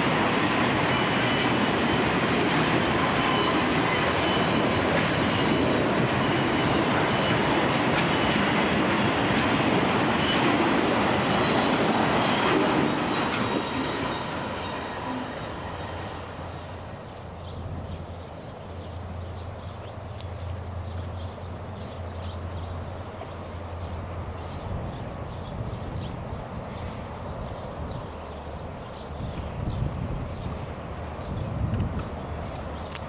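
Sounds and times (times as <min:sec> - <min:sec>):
freight cars rolling past: 0:00.0 - 0:33.0
faint high ringing tones: 0:02.9 - 0:08.6, 0:11.2 - 0:17.6.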